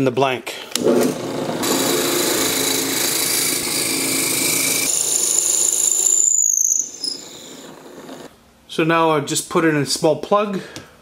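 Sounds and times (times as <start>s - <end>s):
drill press boring into wood: 0.8s - 8.3s
high steady whine: 1.7s - 8.3s.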